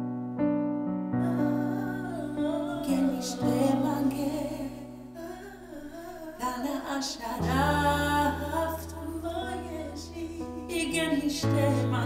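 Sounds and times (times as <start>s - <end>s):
electric keyboard chords: 0.0s - 4.3s
woman singing slow melody: 1.2s - 12.0s.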